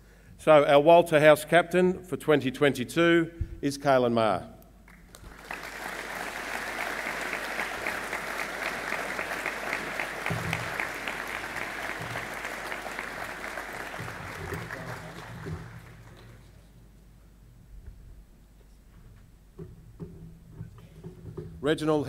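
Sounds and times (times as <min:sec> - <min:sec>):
audience applauding: 0:04.9 - 0:16.6.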